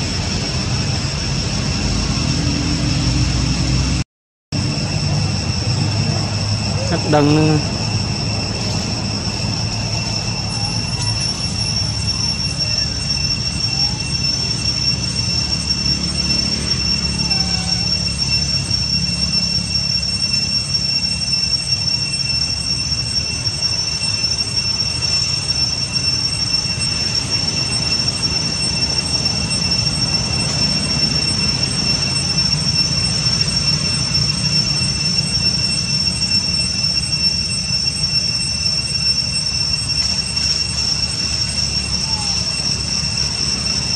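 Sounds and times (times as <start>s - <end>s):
cicadas droning: 0.0s - 4.0s, 4.6s - 43.9s
low rumble: 0.0s - 4.0s.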